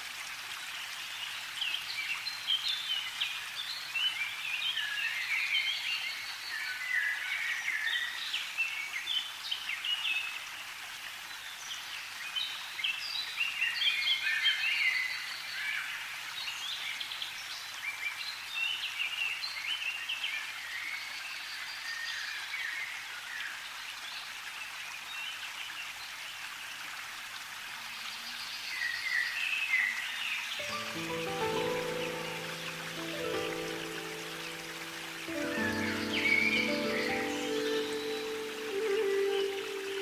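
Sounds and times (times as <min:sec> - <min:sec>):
birds chirping: 0:30.6 - 0:40.0
steady hiss: 0:30.6 - 0:40.0.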